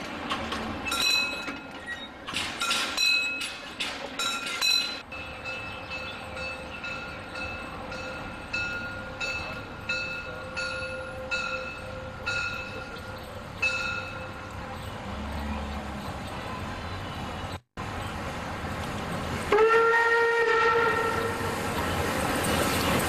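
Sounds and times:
steam locomotive approaching: 0:00.0 - 0:23.0
level-crossing warning bell ringing: 0:00.8 - 0:03.6, 0:04.2 - 0:17.2.

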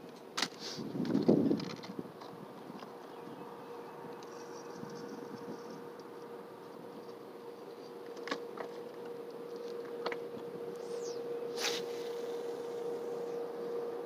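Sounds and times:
steady hum: 0:00.0 - 0:14.0
fishing rod swish: 0:10.8 - 0:12.3.

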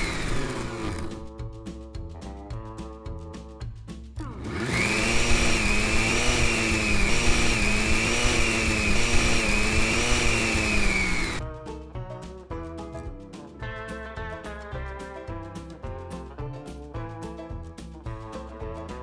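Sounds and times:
blender motor whine: 0:00.0 - 0:01.3, 0:04.4 - 0:11.4
background music: 0:00.0 - 0:19.0.

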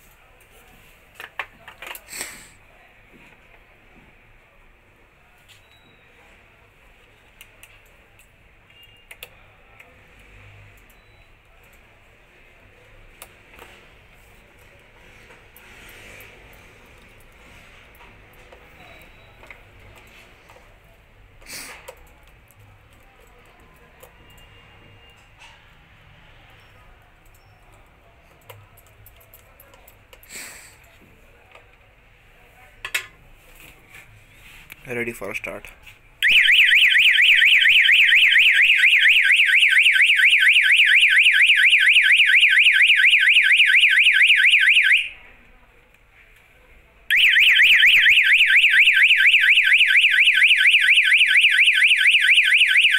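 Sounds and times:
alarm siren warbling: 0:36.2 - 0:45.2, 0:47.1 - 0:52.9.

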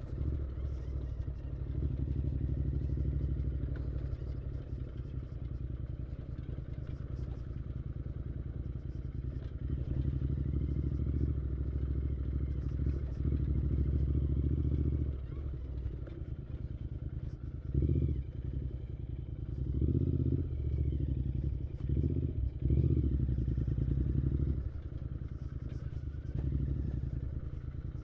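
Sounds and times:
motorcycle engine revving: 0:01.5 - 0:05.1, 0:09.3 - 0:28.0.

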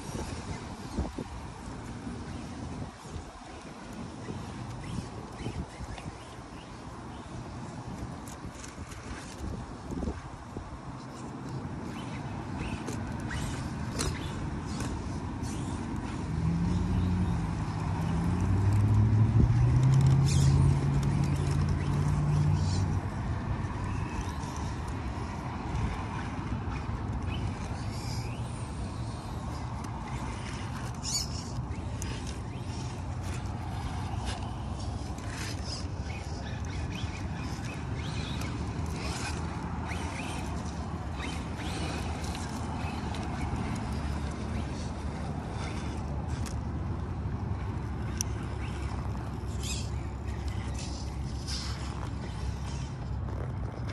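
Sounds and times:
tyres scraping on rocks: 0:48.1 - 0:53.9.

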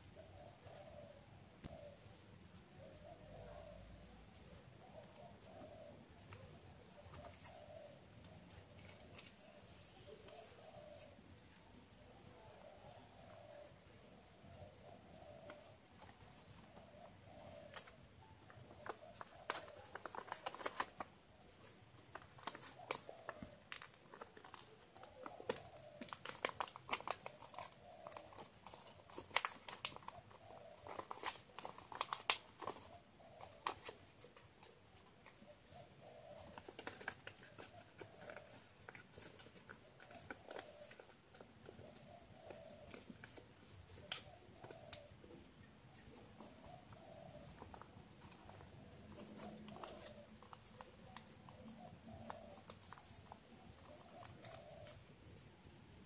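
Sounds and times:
paper folding and crackling: 0:08.4 - 0:11.1, 0:15.5 - 0:35.4, 0:36.4 - 0:45.1, 0:46.4 - 0:55.5.

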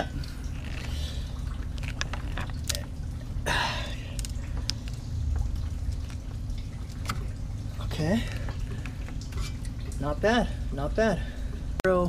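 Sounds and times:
rubber hose creaks and clicks: 0:00.0 - 0:03.0, 0:04.1 - 0:06.2
steady low hum: 0:00.0 - 0:12.0.

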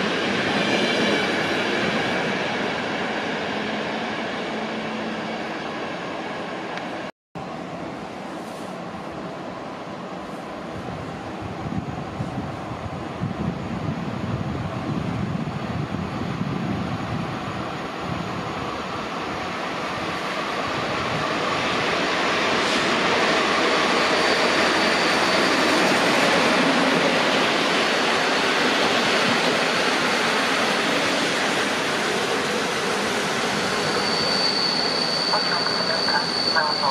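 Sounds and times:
train wheels rumbling on rail: 0:10.3 - 0:36.9
thin high squeal: 0:33.6 - 0:36.9.

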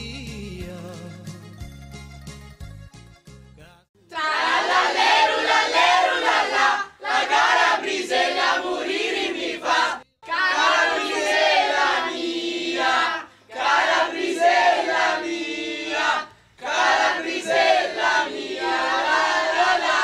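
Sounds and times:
group shouting and chanting: 0:04.1 - 0:20.0.

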